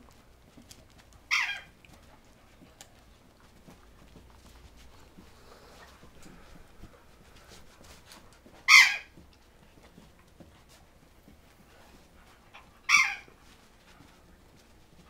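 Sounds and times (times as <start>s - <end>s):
dogs scuffling while play-wrestling: 0.0s - 15.0s
dog barking: 12.9s - 13.3s.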